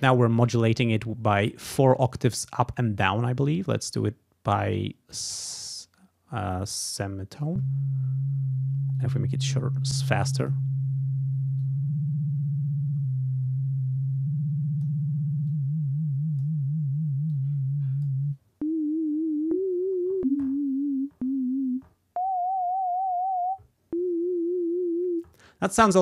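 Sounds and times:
wobbling synthesizer tone: 7.5 - 25.2.

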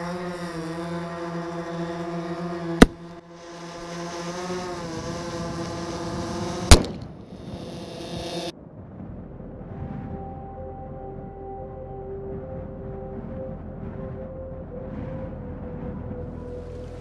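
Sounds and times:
steady droning tone: 0.0 - 17.0
grenade sharp bangs: 6.7 - 7.2.

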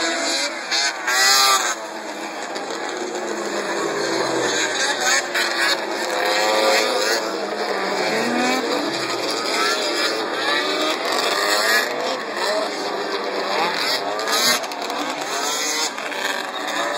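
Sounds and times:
snowmobile engines whining past: 0.0 - 16.9.

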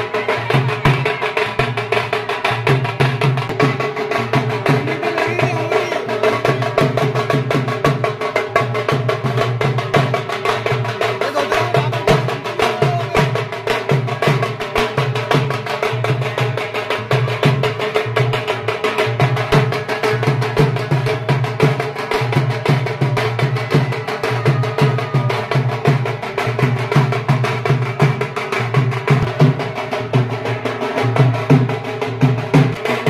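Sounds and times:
drums beaten with sticks: 0.0 - 33.0.

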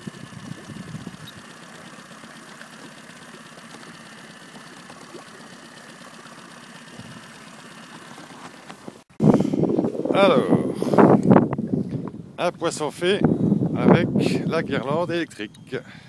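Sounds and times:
small boat motor running: 0.0 - 10.0.

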